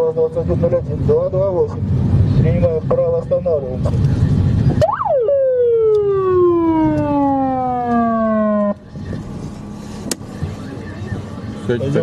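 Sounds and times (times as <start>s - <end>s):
car engine and road noise: 0.0s - 12.0s
police siren winding down: 4.8s - 8.8s.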